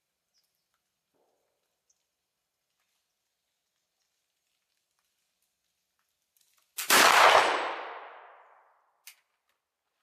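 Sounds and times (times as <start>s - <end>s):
rifle shot report: 6.8s - 8.6s.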